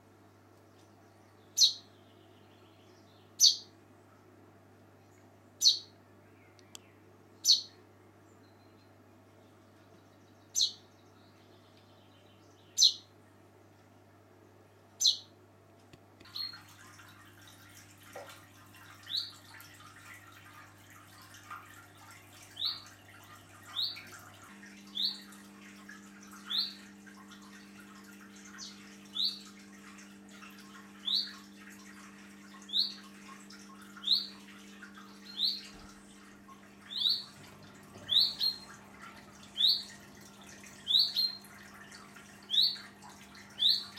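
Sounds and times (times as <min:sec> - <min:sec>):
chaffinch calls: 0:01.5 - 0:01.9, 0:03.4 - 0:03.7, 0:05.6 - 0:05.9, 0:07.4 - 0:07.8, 0:10.5 - 0:11.1, 0:12.6 - 0:13.1, 0:15.0 - 0:15.3, 0:24.9 - 0:33.0, 0:34.0 - 0:35.8, 0:36.8 - 0:41.5, 0:42.4 - 0:42.9, 0:43.5 - 0:43.9.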